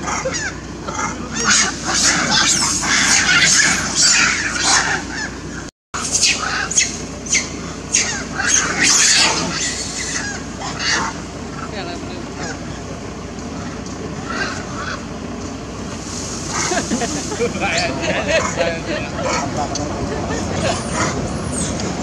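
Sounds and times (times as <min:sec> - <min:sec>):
macaques giving shrill calls: 0:00.0 - 0:12.9, 0:13.5 - 0:15.1, 0:16.0 - 0:18.6.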